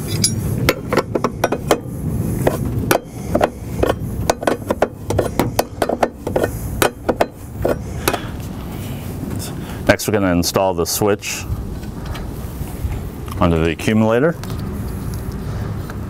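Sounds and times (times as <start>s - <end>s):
metal wrenches clinking: 0.0s - 8.3s
low background rumble: 0.0s - 16.0s.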